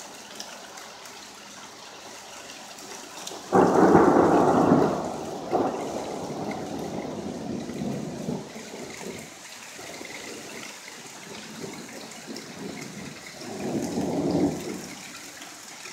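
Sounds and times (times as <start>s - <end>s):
hail and rain falling: 0.0s - 15.9s
thunder rumble: 3.5s - 10.6s, 11.3s - 15.1s.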